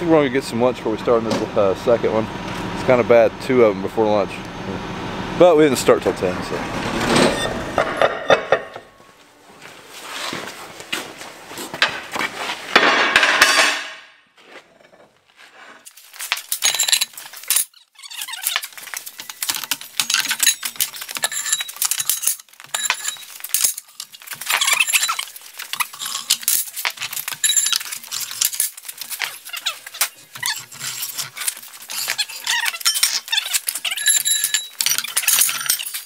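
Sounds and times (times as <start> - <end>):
steel blades clanking: 18.4 - 36.0.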